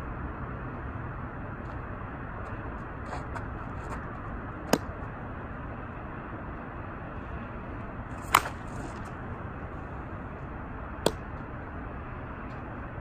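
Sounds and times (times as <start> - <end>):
bat striking ball cracks: 4.7 - 5.0, 8.2 - 9.1, 11.0 - 11.5.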